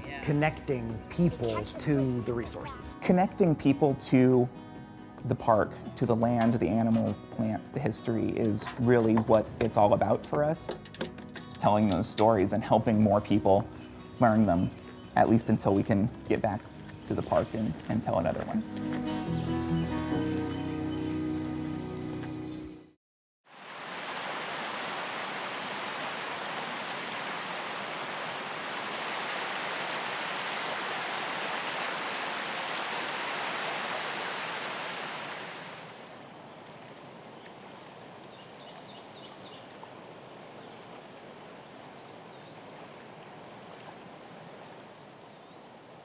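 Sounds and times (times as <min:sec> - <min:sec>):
river rushing over rocks: 0:23.5 - 0:36.1.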